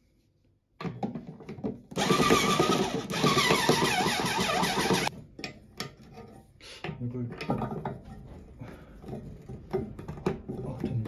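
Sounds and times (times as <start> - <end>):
electric drill driver running: 2.0 - 5.1.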